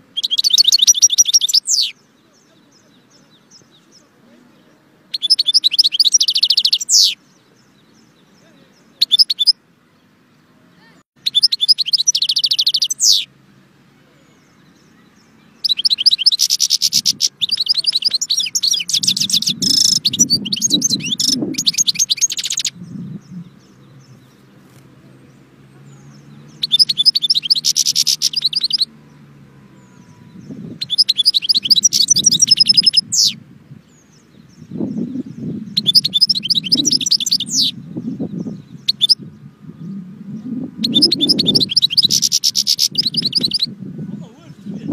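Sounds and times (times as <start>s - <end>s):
goldfinch twittering song: 0.0s - 10.2s, 11.2s - 13.3s, 14.2s - 44.9s.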